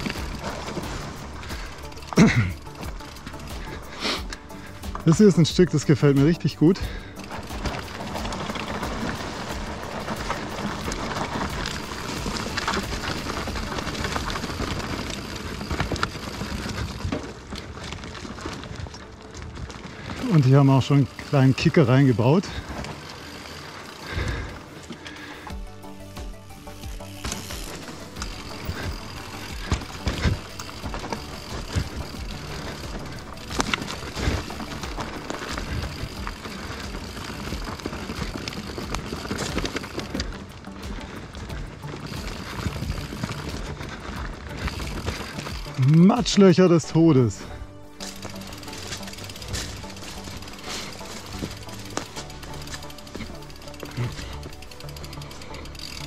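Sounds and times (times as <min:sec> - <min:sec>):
bike clicks and rattles: 0:00.0 - 0:56.0
bike tyres rolling over dirt: 0:00.0 - 0:56.0
bike knocking over bumps: 0:27.0 - 0:45.8.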